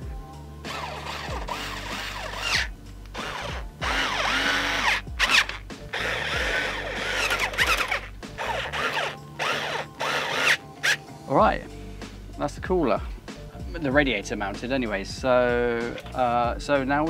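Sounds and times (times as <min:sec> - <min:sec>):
background music: 0:00.0 - 0:17.0
electric screwdriver running: 0:00.7 - 0:11.0.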